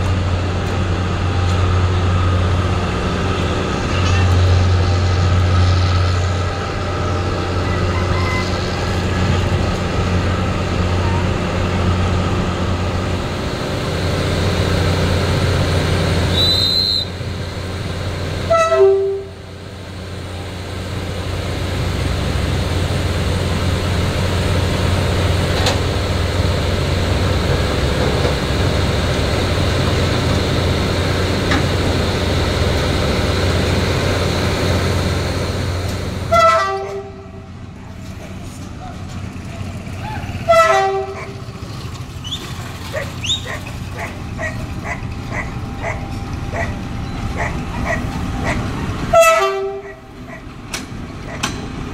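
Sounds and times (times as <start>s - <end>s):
diesel locomotive idling: 0.0s - 51.9s
train horn: 18.5s - 19.5s, 36.3s - 37.5s, 40.4s - 41.4s, 49.1s - 50.1s.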